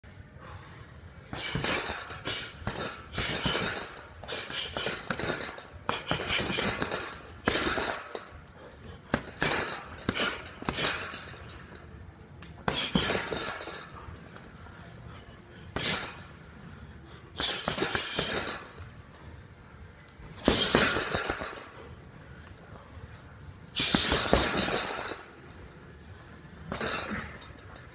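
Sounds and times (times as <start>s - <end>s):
punches hitting heavy bag: 1.3s - 8.1s, 9.0s - 11.2s, 12.6s - 13.8s, 15.7s - 16.2s, 17.4s - 18.8s, 20.4s - 21.6s, 23.8s - 25.2s
chain clinking: 1.4s - 16.4s, 17.4s - 19.5s, 20.2s - 22.6s, 23.8s - 27.9s.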